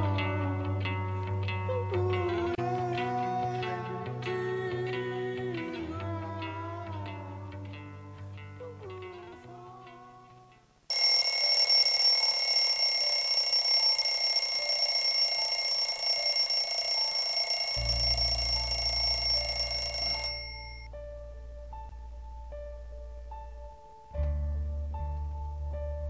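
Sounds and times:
soft music: 0:00.0 - 0:26.0
alarm ringing: 0:10.9 - 0:20.9.

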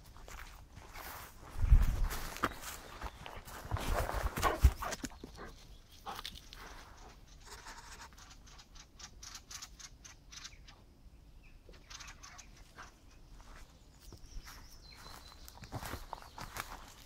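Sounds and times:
footsteps scuffing on rocky ground: 0:00.0 - 0:05.1, 0:13.4 - 0:17.0.

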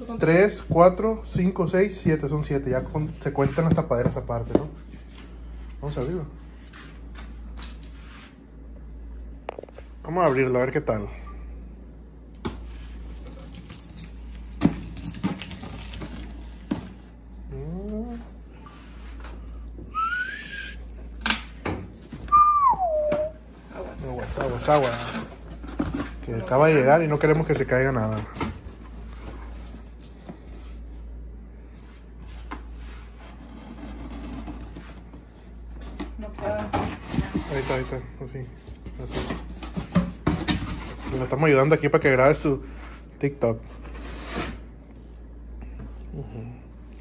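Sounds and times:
steady low hum: 0:00.0 - 0:47.0.

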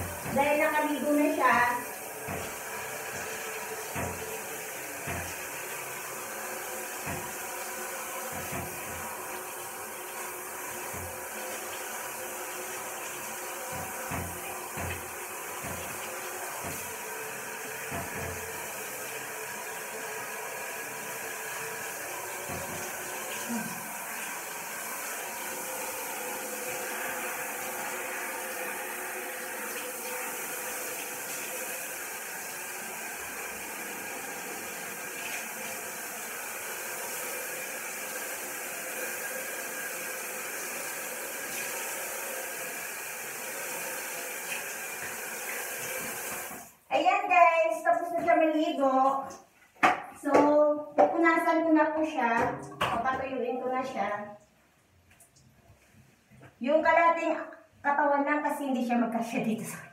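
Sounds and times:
shower head spraying water: 0:00.0 - 0:46.8.

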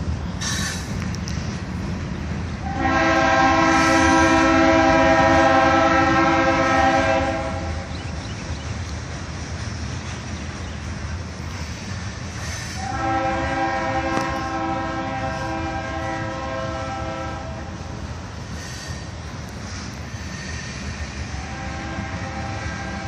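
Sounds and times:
low rumble of passing train: 0:00.0 - 0:23.0
train air horn blast: 0:02.6 - 0:07.9, 0:12.5 - 0:17.8, 0:20.2 - 0:23.0.

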